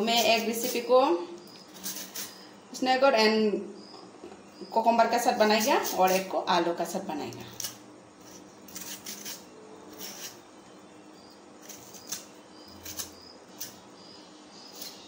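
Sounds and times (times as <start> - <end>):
knife scraping cucumber skin: 0.0 - 0.9, 1.5 - 2.4, 5.4 - 6.3, 7.5 - 10.4, 11.6 - 13.8, 14.6 - 15.0.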